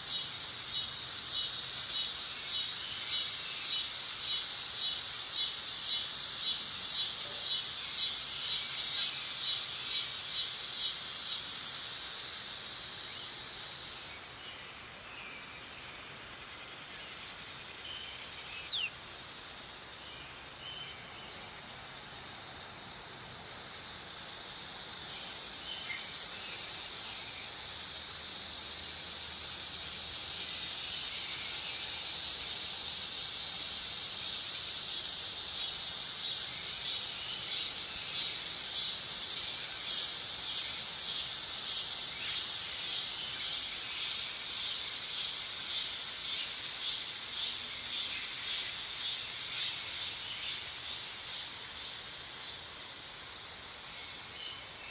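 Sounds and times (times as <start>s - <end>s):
cicada buzzing: 0.0s - 14.9s, 21.0s - 54.7s.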